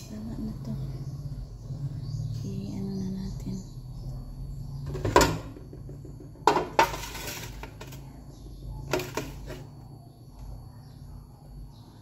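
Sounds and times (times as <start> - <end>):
utensil scraping batter: 6.5 - 8.2, 8.8 - 9.8.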